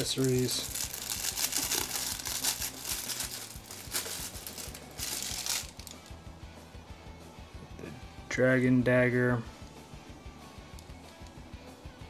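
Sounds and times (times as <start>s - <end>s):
plastic packaging crinkling: 0.0s - 6.1s.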